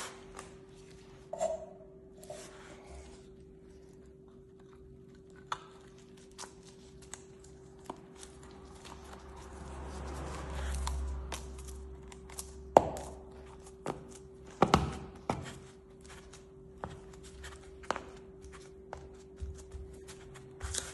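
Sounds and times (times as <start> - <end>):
faint steady hum: 0.0 - 9.3.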